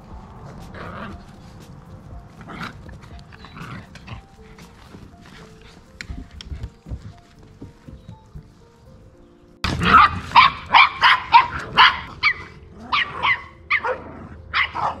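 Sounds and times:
faint music: 0:00.0 - 0:15.0
dog barking: 0:09.8 - 0:15.0.

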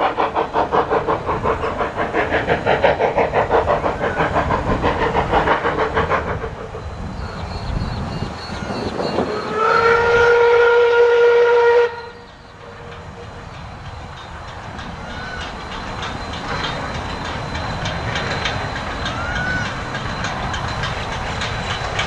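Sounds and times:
train running clatter: 0:00.0 - 0:22.0
steam whistle blast: 0:09.2 - 0:12.3.

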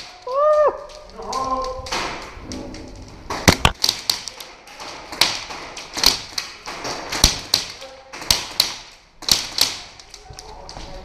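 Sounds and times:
pellets striking wood: 0:03.3 - 0:10.0
airsoft guns firing: 0:03.3 - 0:10.1.

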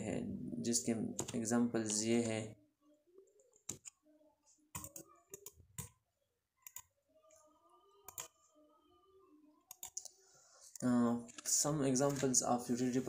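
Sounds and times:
computer mouse clicking: 0:06.6 - 0:06.9, 0:08.1 - 0:08.4, 0:09.7 - 0:12.3.

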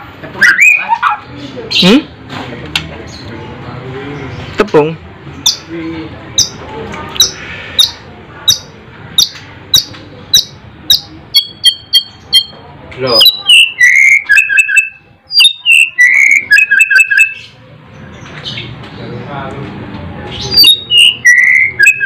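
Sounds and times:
bird singing: 0:00.4 - 0:01.1, 0:05.4 - 0:05.7, 0:06.3 - 0:06.6, 0:07.2 - 0:19.2, 0:20.3 - 0:22.0.

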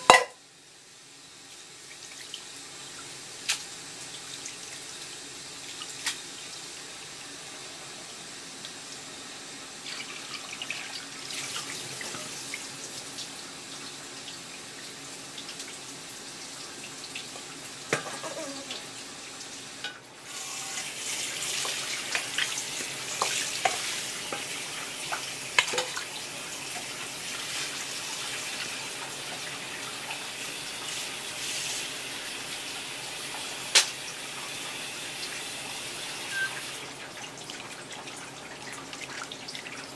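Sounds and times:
sharp knocks on steel bowl: 0:00.0 - 0:00.4
tap water running into bowl: 0:20.7 - 0:39.9.

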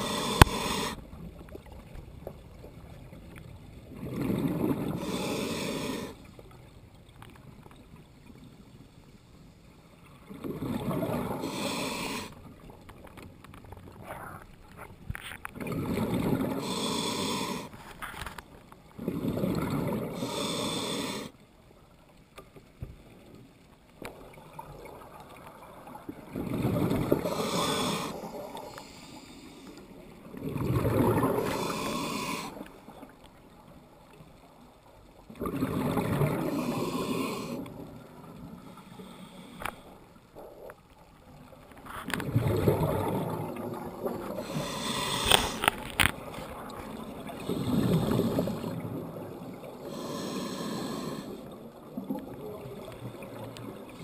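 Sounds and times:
scuba regulator breathing: 0:00.0 - 0:01.1, 0:04.9 - 0:06.3, 0:11.2 - 0:12.4, 0:16.5 - 0:18.2, 0:20.0 - 0:21.4, 0:27.0 - 0:29.9, 0:31.2 - 0:32.8, 0:36.4 - 0:37.8, 0:38.6 - 0:40.1, 0:44.2 - 0:46.0, 0:47.3 - 0:48.8, 0:49.8 - 0:51.6
exhaled air bubbling: 0:03.6 - 0:06.3, 0:10.3 - 0:12.6, 0:15.5 - 0:17.8, 0:19.0 - 0:21.3, 0:24.0 - 0:28.8, 0:30.0 - 0:33.1, 0:35.3 - 0:38.9, 0:42.1 - 0:54.0.

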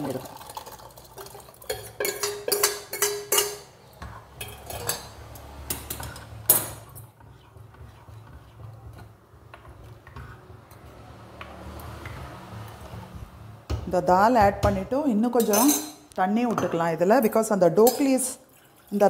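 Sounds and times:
metal ladle clinking against pot: 0:01.7 - 0:03.7
stirring thick food in clay pot: 0:05.8 - 0:13.4.

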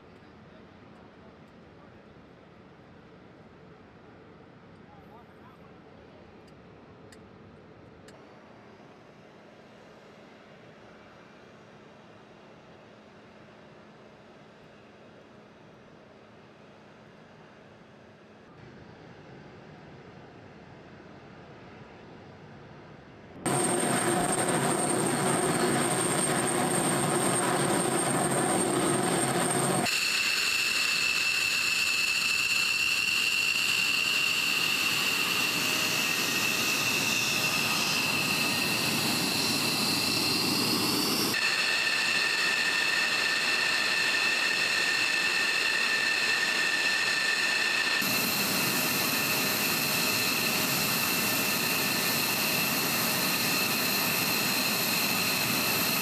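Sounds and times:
jet engine running: 0:23.4 - 0:56.0.

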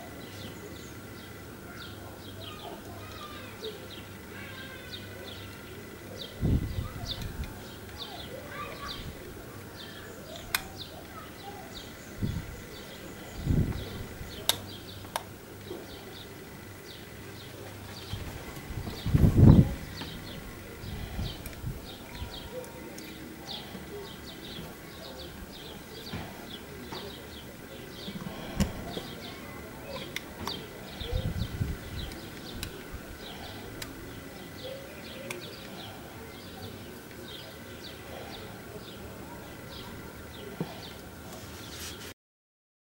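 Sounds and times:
small birds chirping: 0:00.0 - 0:42.1
handling rumble: 0:12.2 - 0:37.2.

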